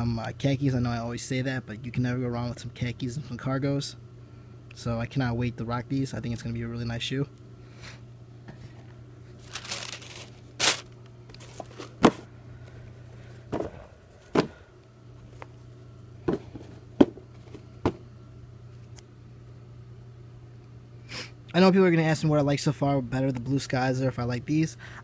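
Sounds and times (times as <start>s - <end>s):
tissue paper crinkling: 9.4s - 12.0s
shoes knocking on box: 13.5s - 14.6s, 16.3s - 18.0s.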